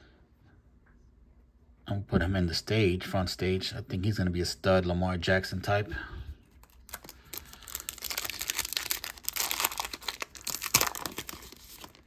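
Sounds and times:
wrapper crinkling and tearing: 6.5s - 12.0s.

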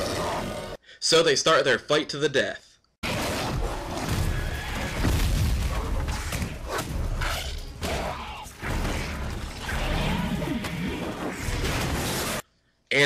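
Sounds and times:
creature growls: 0.0s - 0.8s, 3.1s - 12.4s.

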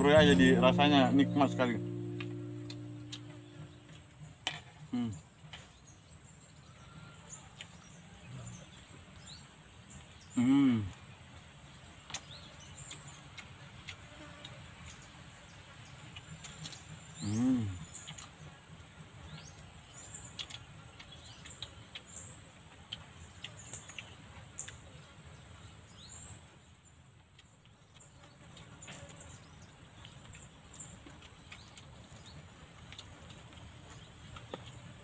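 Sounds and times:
bird chirps: 0.0s - 10.9s.

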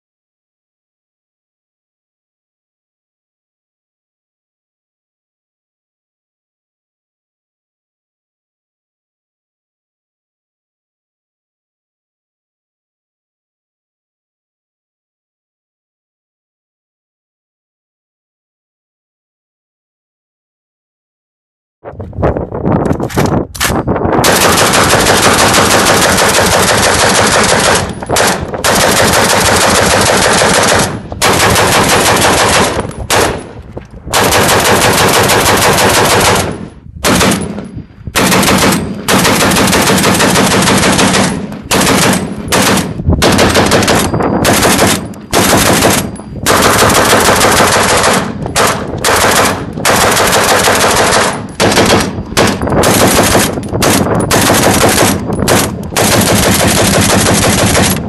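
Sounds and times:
machine gun rapid-fire bursts: 24.2s - 33.5s, 34.1s - 37.6s, 38.2s - 58.0s.

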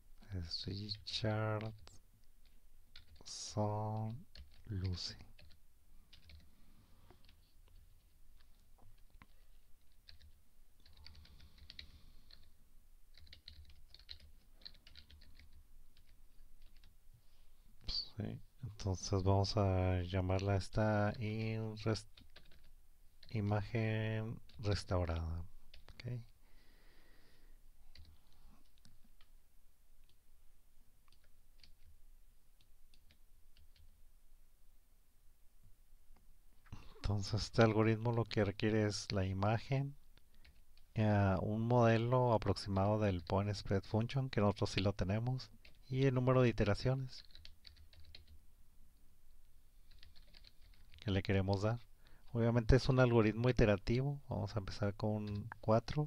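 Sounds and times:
faint keyboard typing: 1.0s - 17.0s, 20.3s - 26.4s, 27.3s - 29.4s, 30.0s - 30.2s, 31.0s - 34.0s, 36.1s - 48.4s, 49.0s - 54.0s, 54.6s - 56.0s
computer keyboard clicks: 13.1s - 16.9s, 47.2s - 48.4s.

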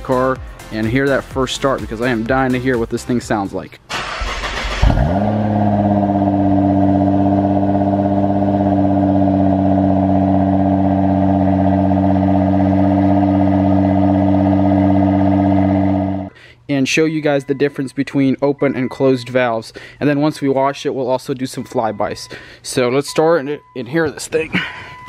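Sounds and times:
car engine starting and idling: 3.9s - 16.3s.

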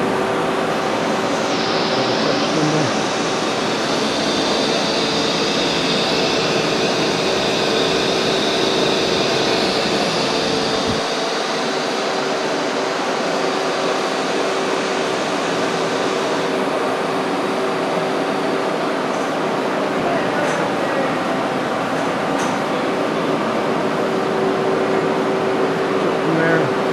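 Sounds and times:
machinery hum and hiss: 0.0s - 26.9s.

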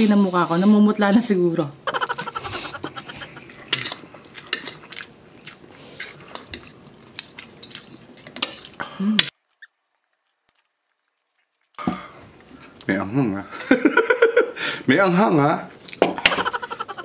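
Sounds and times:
utensils scraping a plate: 2.6s - 5.0s.

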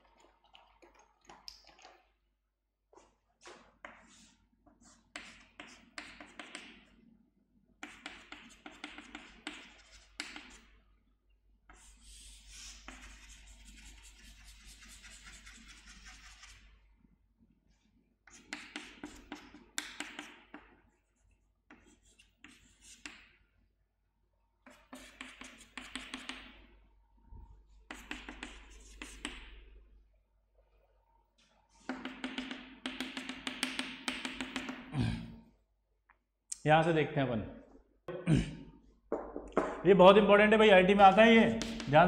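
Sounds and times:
chalk scratching on chalkboard: 3.0s - 6.9s, 7.8s - 10.8s, 11.7s - 16.8s, 18.2s - 23.4s, 24.6s - 26.6s, 27.9s - 29.6s.

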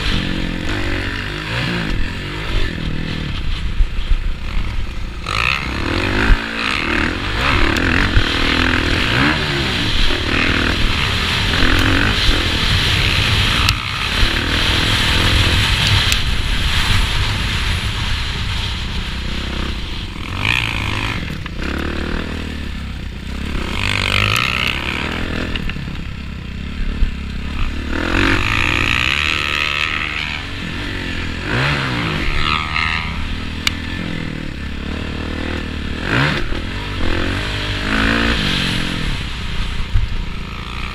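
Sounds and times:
motocross bike engine revving: 0.0s - 40.9s
wind rush: 0.0s - 40.9s.

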